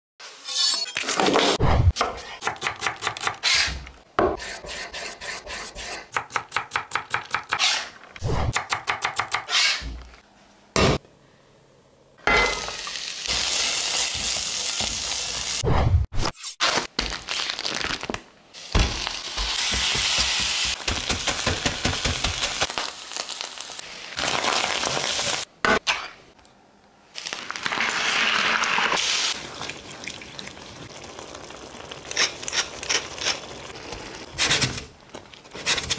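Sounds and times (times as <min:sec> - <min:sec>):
meat sizzling in a pan: 0:12.6 - 0:15.6, 0:18.9 - 0:25.5
plastic package crinkling: 0:16.8 - 0:18.3.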